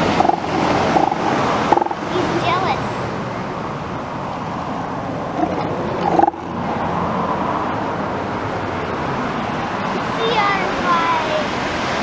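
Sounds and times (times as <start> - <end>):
elephant seals calling: 0.0 - 2.4, 5.3 - 6.5.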